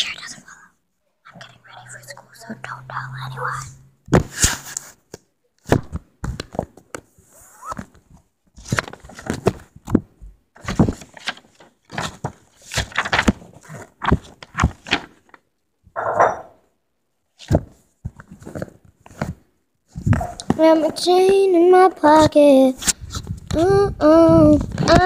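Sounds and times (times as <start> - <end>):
fabric rustling and scraping: 17.5 - 21.1.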